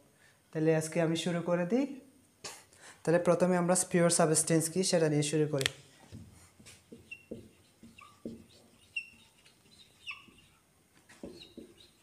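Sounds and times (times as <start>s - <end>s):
marker writing on whiteboard: 6.0s - 12.0s
faint bird chirps: 8.0s - 10.6s.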